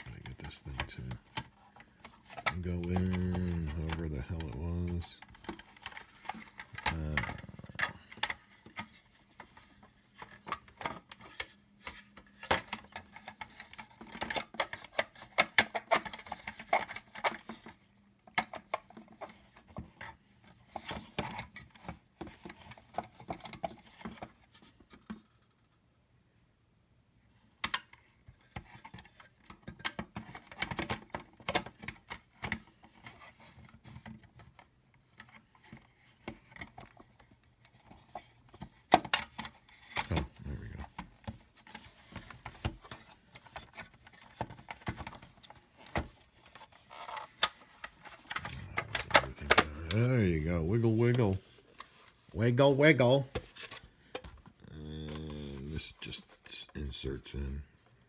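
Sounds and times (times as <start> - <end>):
plastic parts clicking and rattling: 0.0 - 25.7, 27.4 - 52.4, 53.0 - 56.5.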